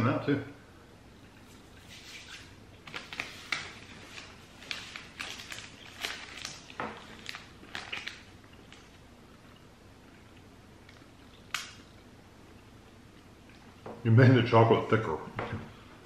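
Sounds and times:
wrapper crinkling: 1.8s - 9.0s
quiet chewing: 6.0s - 13.8s.

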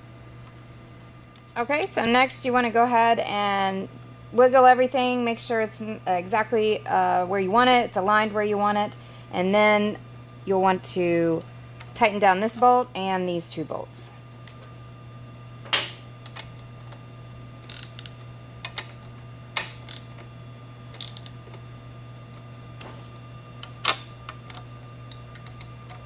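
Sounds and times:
ratchet clicking: 17.6s - 18.8s, 19.6s - 20.1s, 20.9s - 21.4s.

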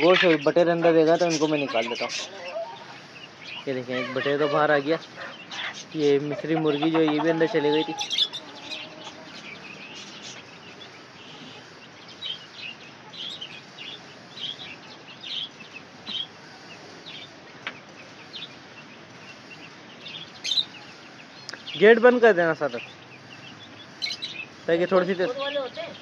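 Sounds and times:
chicks chirping: 0.0s - 26.0s.

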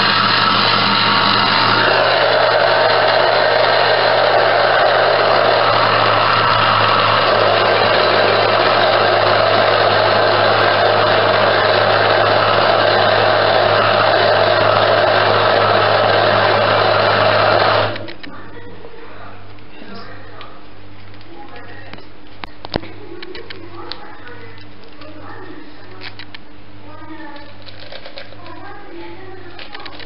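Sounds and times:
blender motor running: 0.0s - 18.1s.

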